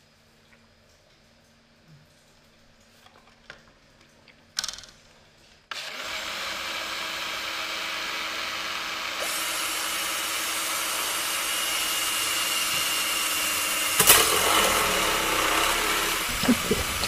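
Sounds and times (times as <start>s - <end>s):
blender running: 5.7s - 17.0s.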